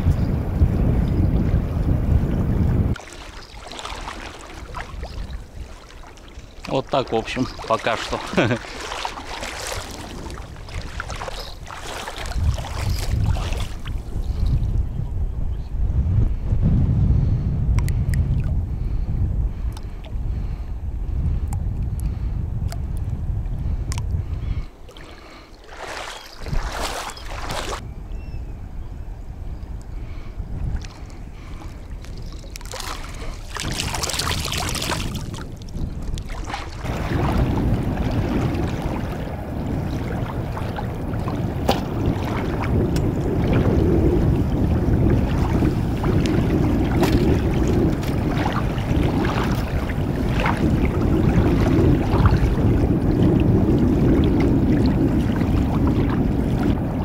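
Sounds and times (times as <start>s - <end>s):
wind on microphone: 0.0s - 57.0s
small waves lapping: 2.9s - 14.7s, 24.5s - 27.8s, 29.7s - 56.8s
bait splashing into water: 3.0s - 6.8s, 25.0s - 27.8s, 32.0s - 35.4s.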